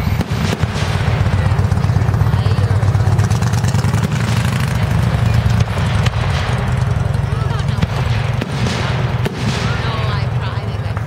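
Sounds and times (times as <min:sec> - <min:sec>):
sharp fireworks bang: 0:00.0 - 0:02.0, 0:03.9 - 0:04.6, 0:05.5 - 0:10.5
fireworks booming: 0:00.0 - 0:11.0.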